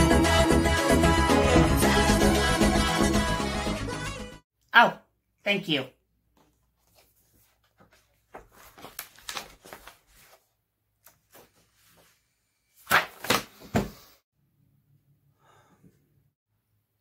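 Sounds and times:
paper rustling: 0:06.4 - 0:12.2, 0:12.8 - 0:13.9.

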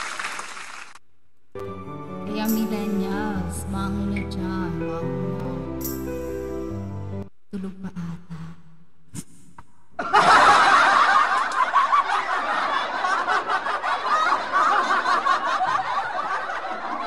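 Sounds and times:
crowd laughing: 0:10.0 - 0:17.0.

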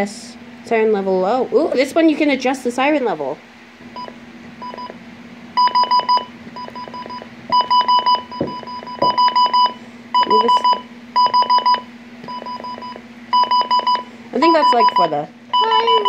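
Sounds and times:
rapid high-pitched alert beeps: 0:05.6 - 0:16.0.

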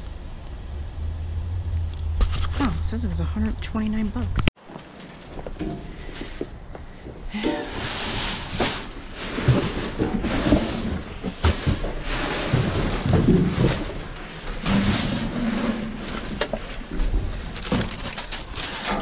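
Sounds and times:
plastic bags rustling and crinkling: 0:07.3 - 0:19.0.

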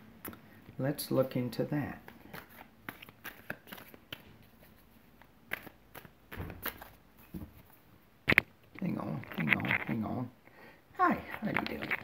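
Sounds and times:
cards being shuffled: 0:01.9 - 0:10.2, 0:11.0 - 0:12.0.

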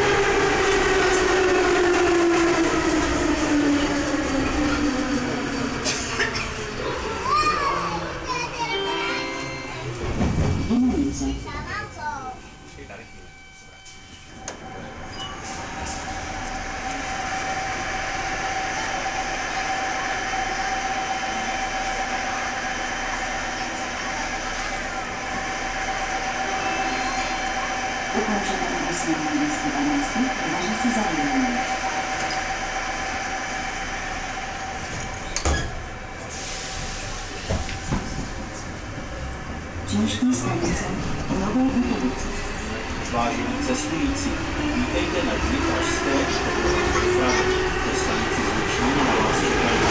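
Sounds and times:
metro train hum: 0:00.0 - 0:49.9
train doors slamming shut: 0:10.0 - 0:10.9, 0:34.9 - 0:35.9, 0:37.4 - 0:38.4.

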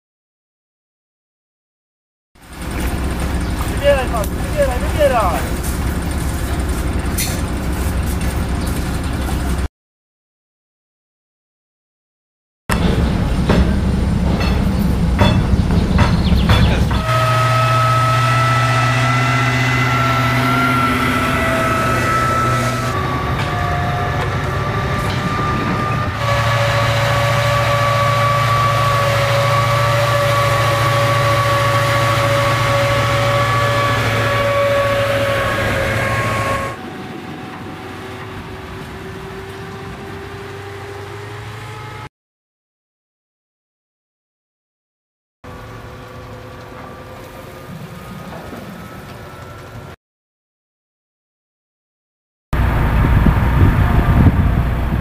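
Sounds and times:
diesel engine running: 0:02.4 - 0:09.7, 0:12.7 - 0:42.1, 0:45.5 - 0:50.0, 0:52.6 - 0:55.0
high drivetrain whine: 0:02.4 - 0:09.7, 0:12.7 - 0:42.1, 0:45.5 - 0:50.0, 0:52.6 - 0:55.0
sharp knocks: 0:12.7 - 0:17.0.

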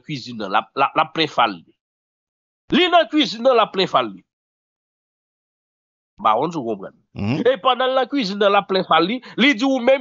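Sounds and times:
man speaking: 0:02.7 - 0:04.2, 0:06.2 - 0:10.0.

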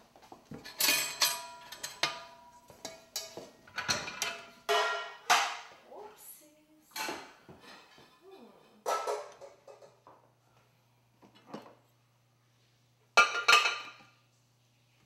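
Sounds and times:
metal pots and pans clanking: 0:00.6 - 0:05.7, 0:08.8 - 0:10.1, 0:13.2 - 0:14.0.

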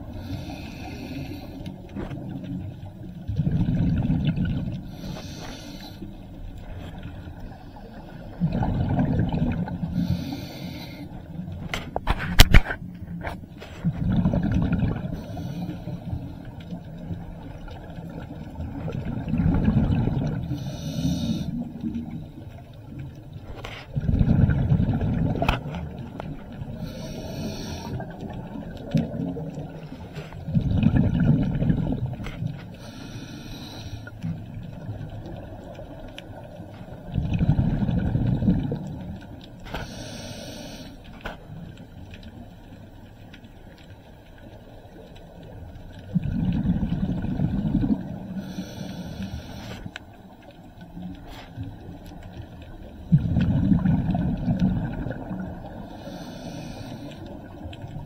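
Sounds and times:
regulator inhalation hiss: 0:00.2 - 0:01.6, 0:05.0 - 0:06.1, 0:20.6 - 0:21.6, 0:26.8 - 0:28.0, 0:32.8 - 0:34.2, 0:39.8 - 0:41.0, 0:48.4 - 0:49.9, 0:55.9 - 0:57.3
bubbling exhalation underwater: 0:13.8 - 0:15.2, 0:24.0 - 0:26.0, 0:30.5 - 0:32.2, 0:37.1 - 0:38.9, 0:46.1 - 0:48.3, 0:53.0 - 0:55.7.

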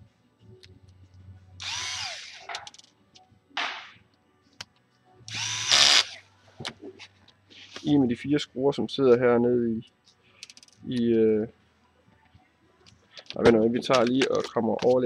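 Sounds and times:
electric screwdriver whirring: 0:01.6 - 0:02.5, 0:05.3 - 0:06.2.

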